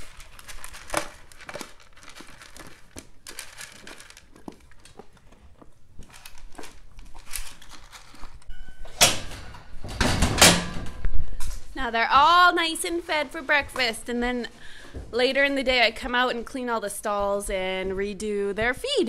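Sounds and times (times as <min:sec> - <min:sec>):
horse chewing grain pellets: 0:00.0 - 0:08.5.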